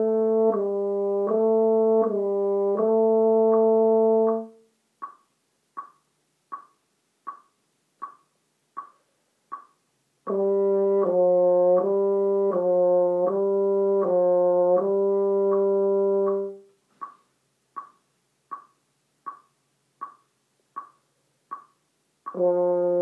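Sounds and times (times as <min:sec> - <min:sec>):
french horn notes: 0:00.0 - 0:04.6, 0:10.2 - 0:16.7, 0:22.3 - 0:23.0
metronome ticking: 0:00.0 - 0:23.0.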